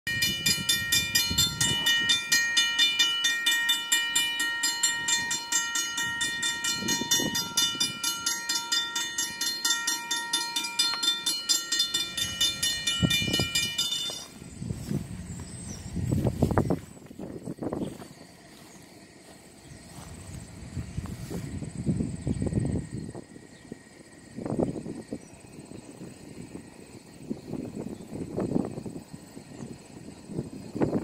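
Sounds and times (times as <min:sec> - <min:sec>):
crossing warning bell ringing: 0:00.1 - 0:18.6.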